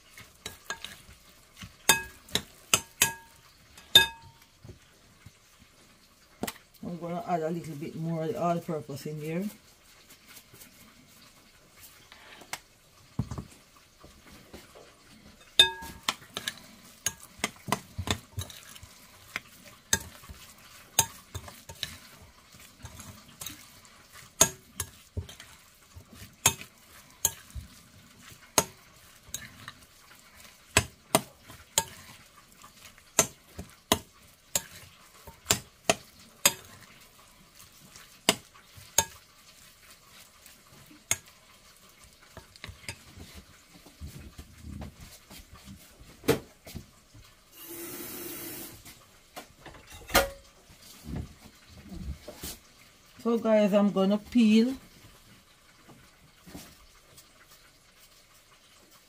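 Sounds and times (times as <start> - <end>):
spoon clinking on glass bowl: 1.9 - 4.4, 15.4 - 16.5
soft scraping of stuffing: 9.2 - 12.6, 13.9 - 46.0.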